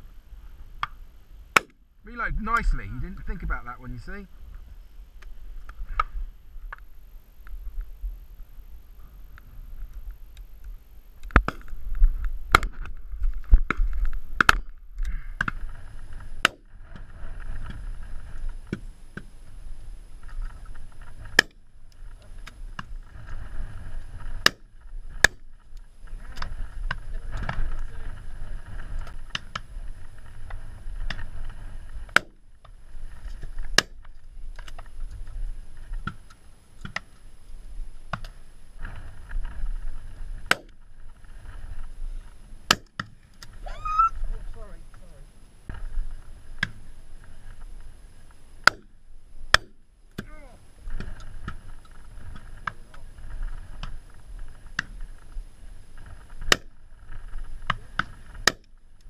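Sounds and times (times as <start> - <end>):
wind rumbling on microphone: 0.0 - 59.0
muffled shotgun cracks: 0.8 - 1.8.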